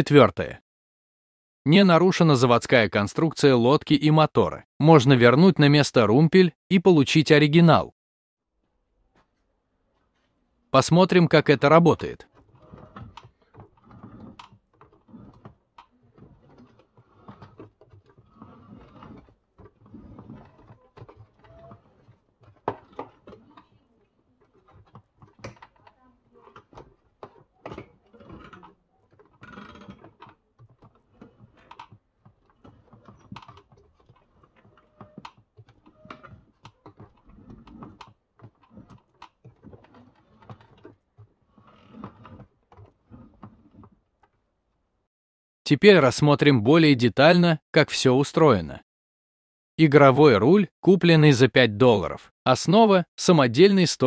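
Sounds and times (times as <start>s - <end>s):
plastic and metal parts clicking: 12.3s - 44.4s.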